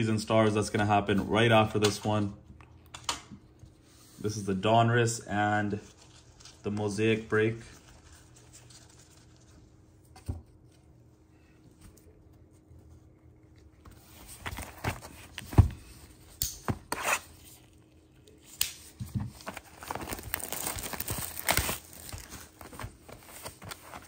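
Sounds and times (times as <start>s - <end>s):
plastic wrap crinkling: 19.3s - 24.0s.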